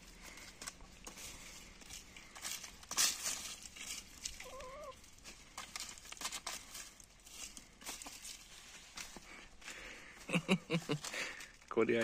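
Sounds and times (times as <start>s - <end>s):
hens pecking: 0.0s - 11.7s
rustling in leaves: 0.0s - 12.0s
hen call: 4.4s - 5.0s.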